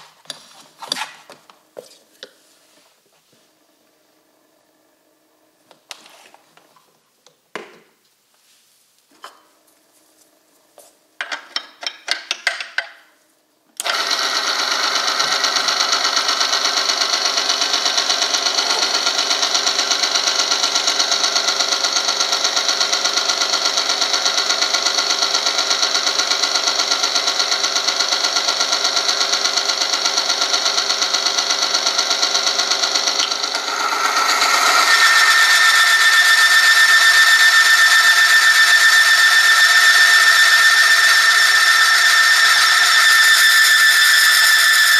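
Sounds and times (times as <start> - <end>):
machine grinding whine: 13.8 - 44.9
high squeal: 34.3 - 44.9.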